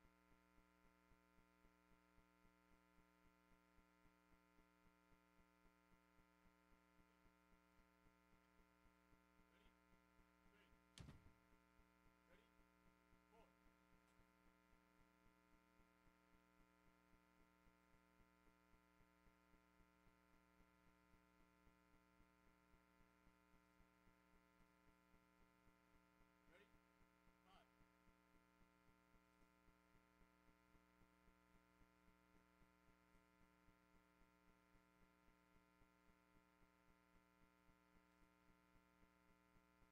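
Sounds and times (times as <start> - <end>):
sharp click: 11.0 - 11.3.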